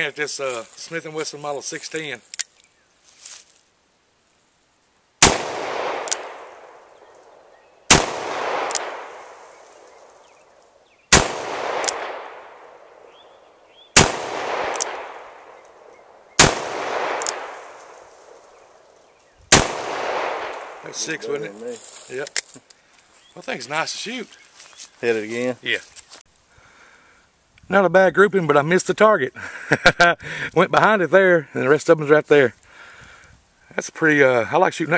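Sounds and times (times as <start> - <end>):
revolver shots: 7.9 - 10.2.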